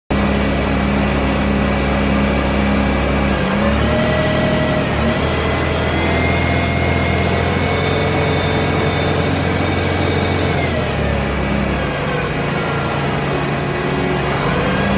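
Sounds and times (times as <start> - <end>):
lathe humming and whining: 0.2 - 14.9.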